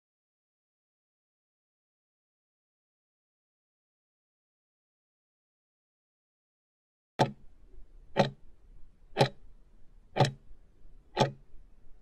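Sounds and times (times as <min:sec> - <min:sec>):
clock ticks: 0:07.2 - 0:07.4, 0:08.1 - 0:08.4, 0:09.2 - 0:09.4, 0:10.2 - 0:10.4, 0:11.1 - 0:11.5.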